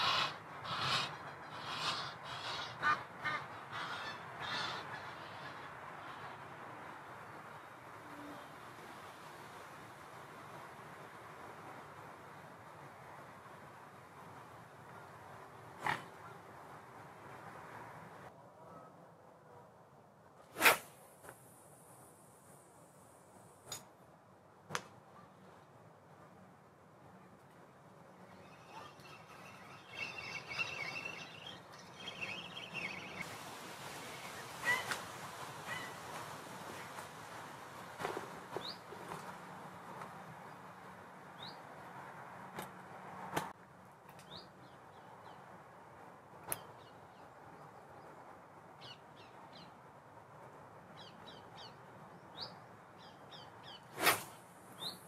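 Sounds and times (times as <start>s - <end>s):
waterfowl calling: 0.0s - 6.4s, 28.4s - 33.3s, 34.0s - 35.0s, 35.6s - 36.1s
fishing rod whoosh: 20.5s - 21.0s, 54.0s - 54.4s.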